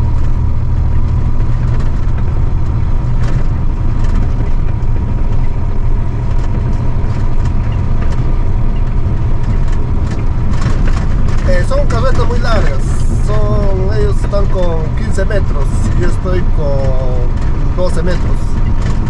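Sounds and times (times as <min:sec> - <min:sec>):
truck diesel engine rumbling: 0:00.0 - 0:19.0.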